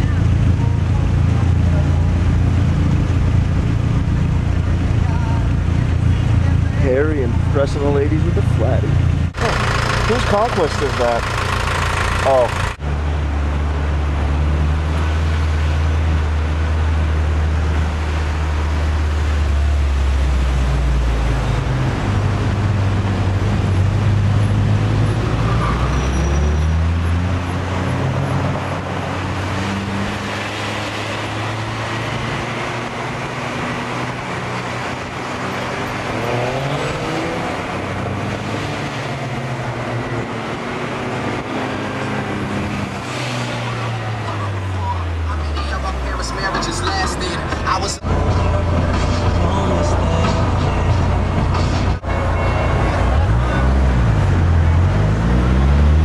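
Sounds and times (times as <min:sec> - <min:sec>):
deep engine drone: 0:00.0 - 0:25.5, 0:44.0 - 0:56.0
road noise: 0:00.0 - 0:56.0.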